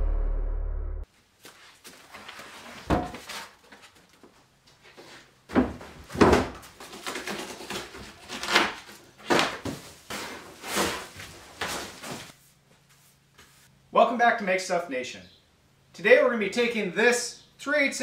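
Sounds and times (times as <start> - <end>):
cardboard rustling and scraping: 1.4 - 13.7.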